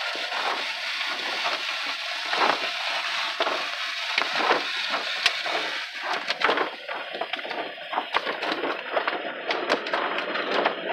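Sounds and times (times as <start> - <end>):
wash brushes scrubbing and slapping: 0.0 - 10.2
water spraying: 0.0 - 10.9.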